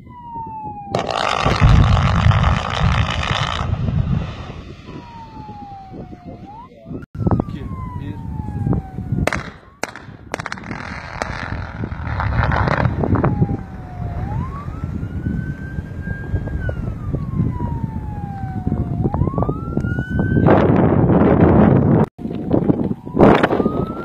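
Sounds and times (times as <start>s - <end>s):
low wind-like noise: 0.0s - 24.0s
warning siren wailing: 0.0s - 24.0s
blasting bangs and rumble: 0.9s - 6.1s, 7.2s - 18.2s.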